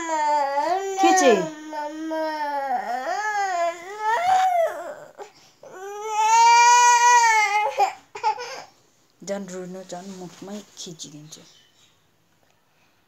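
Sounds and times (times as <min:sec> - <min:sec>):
toddler crying: 0:00.0 - 0:08.7.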